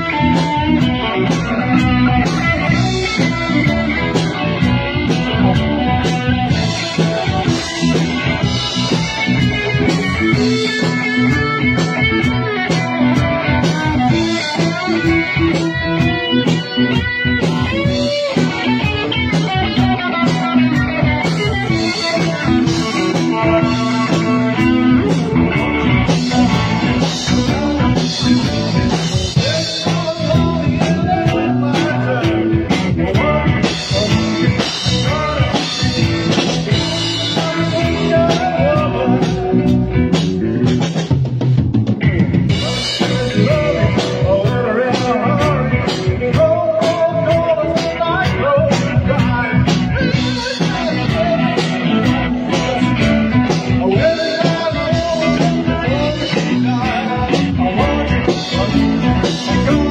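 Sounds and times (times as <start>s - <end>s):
drum kit: 0.0s - 59.9s
electric bass: 0.0s - 59.9s
electric guitar lead lines: 0.0s - 59.9s.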